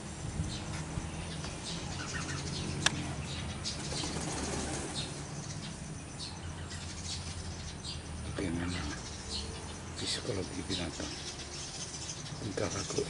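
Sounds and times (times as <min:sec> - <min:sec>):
wings flapping: 0:03.7 - 0:05.1.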